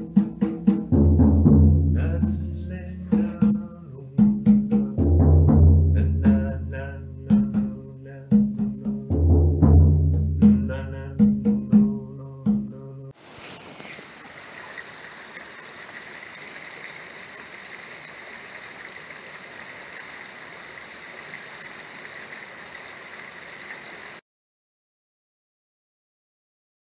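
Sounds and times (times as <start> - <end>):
deep drum strokes: 0.0 - 12.7.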